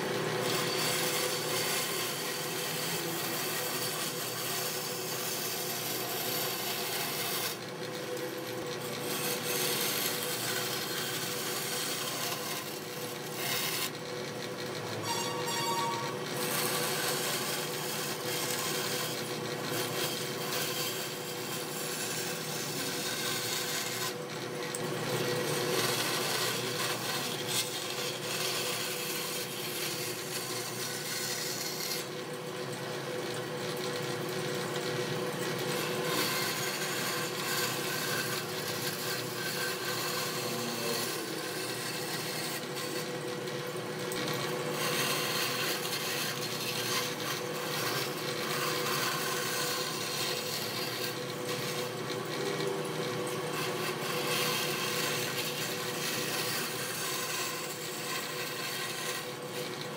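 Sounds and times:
band saw blade rasping through wood: 0:00.0 - 0:32.3, 0:33.2 - 0:59.9
band saw machine hum: 0:07.8 - 0:45.0.

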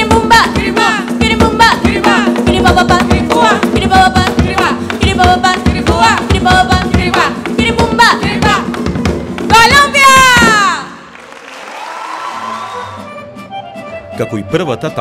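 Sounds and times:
voices singing: 0:00.0 - 0:08.8
hand drums fast rhythm: 0:00.0 - 0:10.8.

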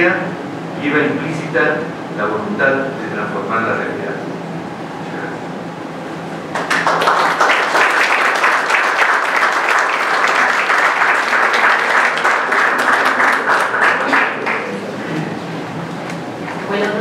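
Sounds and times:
audience applauding: 0:06.5 - 0:15.1.

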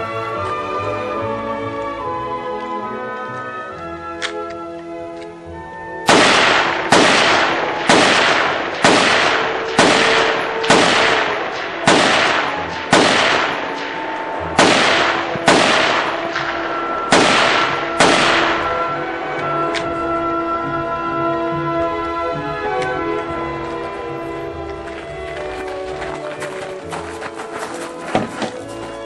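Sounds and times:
faint music: 0:00.0 - 0:29.0
rifle shots echoing: 0:06.1 - 0:19.0.

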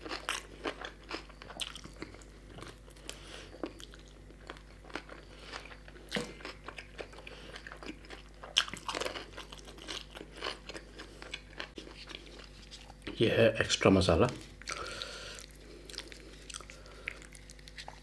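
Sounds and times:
man chewing food: 0:00.0 - 0:13.1, 0:14.4 - 0:18.0.

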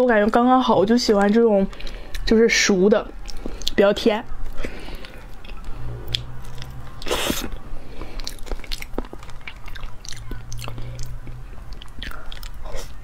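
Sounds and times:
person chewing: 0:01.7 - 0:02.3, 0:03.1 - 0:03.8, 0:04.4 - 0:13.0
wet mouth clicks: 0:04.9 - 0:13.0.

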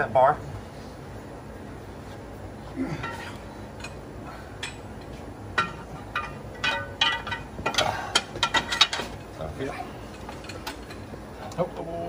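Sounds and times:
pry bar clinking and scraping metal: 0:05.6 - 0:09.2.

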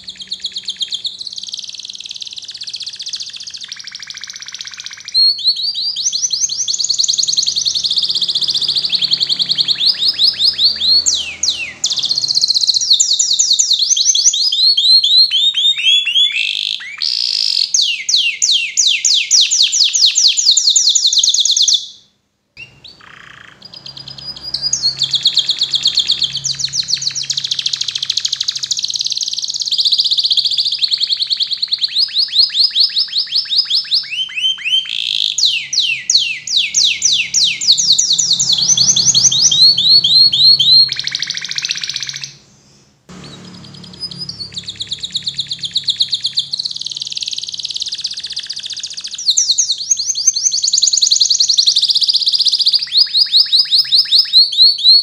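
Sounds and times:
canary singing trills: 0:00.0 - 0:55.0.

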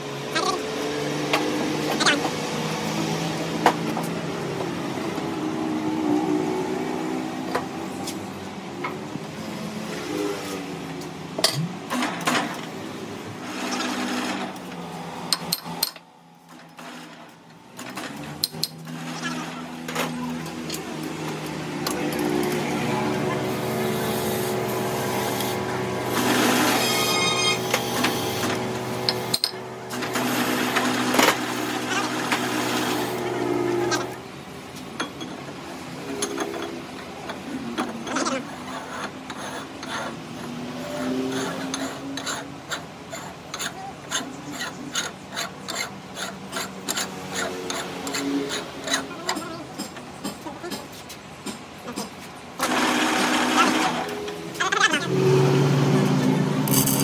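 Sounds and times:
metal lathe motor hum: 0:20.4 - 0:34.1
hand scraping metal hub: 0:37.6 - 0:50.9, 0:56.7 - 0:57.0.

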